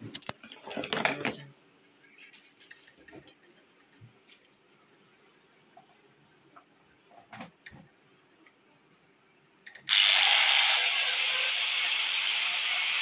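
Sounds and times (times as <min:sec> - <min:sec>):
angle grinder running: 0:09.9 - 0:13.0.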